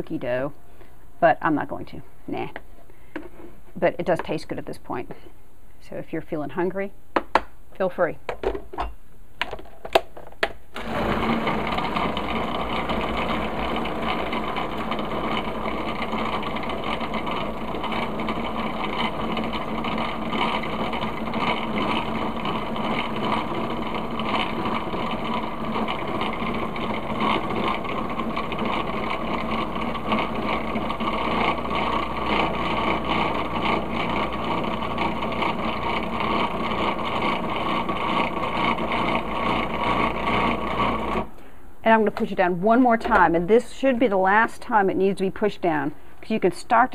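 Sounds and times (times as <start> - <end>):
food processor running: 10.8 - 41.4.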